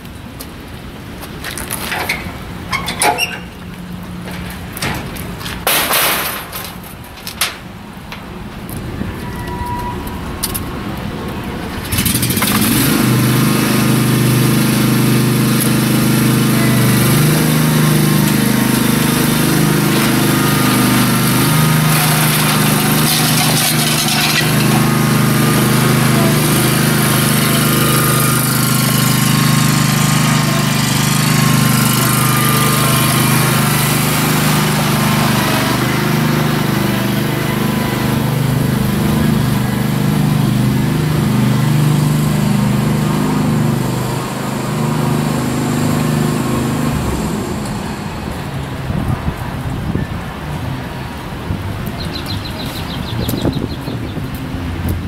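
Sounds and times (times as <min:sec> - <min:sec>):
lawn mower engine running: 0:10.8 - 0:49.8.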